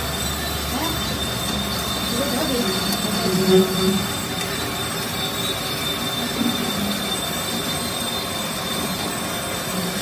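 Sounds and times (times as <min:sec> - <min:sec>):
lathe machining with high whine: 0:00.0 - 0:10.0.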